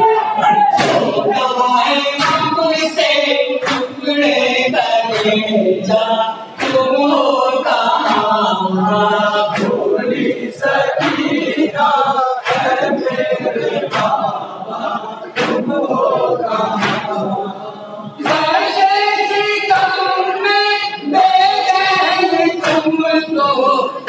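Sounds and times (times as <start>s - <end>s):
men chanting in unison: 0.0s - 24.0s
hands slapping chests: 0.5s - 1.3s, 3.6s - 3.9s, 9.5s - 9.8s, 11.0s - 11.4s, 12.4s - 14.5s, 15.4s - 17.3s.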